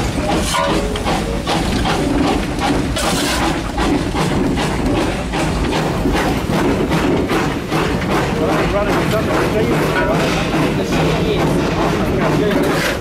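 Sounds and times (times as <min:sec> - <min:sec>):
steam locomotive exhaust chuffing: 0:00.0 - 0:13.0.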